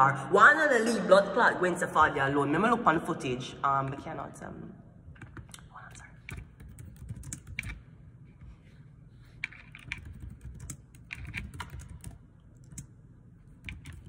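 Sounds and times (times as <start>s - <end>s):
typing taps and clicks: 5.1s - 7.8s, 9.4s - 12.9s, 13.5s - 14.0s.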